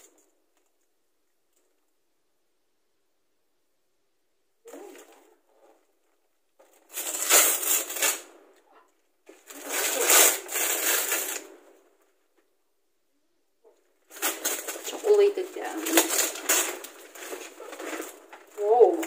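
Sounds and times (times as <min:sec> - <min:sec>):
wrapping paper tearing: 0:06.9 - 0:08.3, 0:09.3 - 0:11.6, 0:14.1 - 0:19.0.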